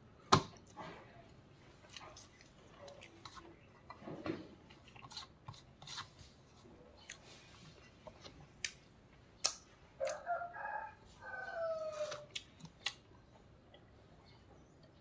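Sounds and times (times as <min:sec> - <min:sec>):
rooster crowing: 0:10.0 - 0:12.3
mouth eating clicks: 0:12.2 - 0:13.9.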